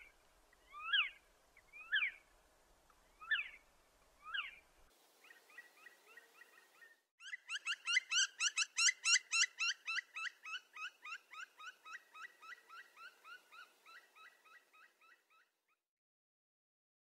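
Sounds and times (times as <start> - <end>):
woodpecker calling: 0.7 - 2.2, 3.2 - 3.6, 4.2 - 4.6, 5.2 - 15.5.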